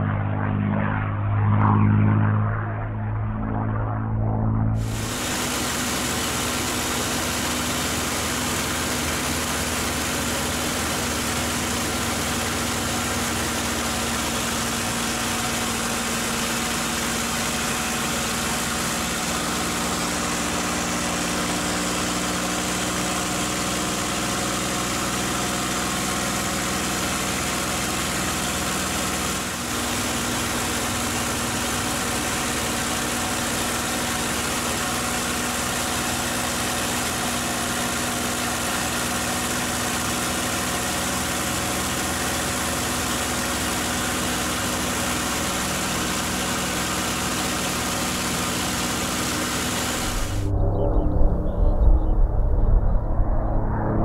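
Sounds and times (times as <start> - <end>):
airflow rushing: 0.0 - 7.6, 49.5 - 54.0
aircraft engine running: 0.0 - 54.0.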